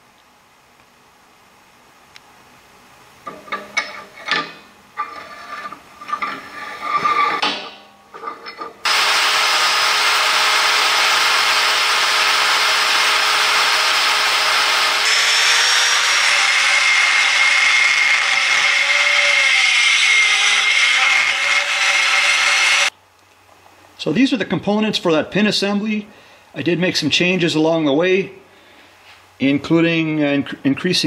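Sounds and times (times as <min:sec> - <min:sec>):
die grinder whining and grinding: 0:08.8 - 0:22.9.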